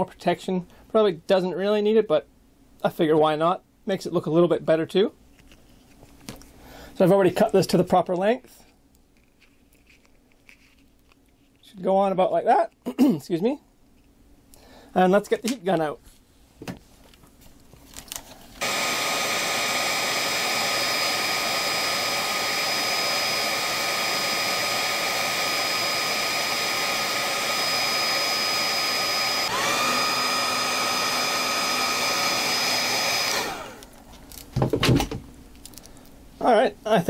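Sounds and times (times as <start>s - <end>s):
heat gun blowing and whining: 18.6s - 34.5s.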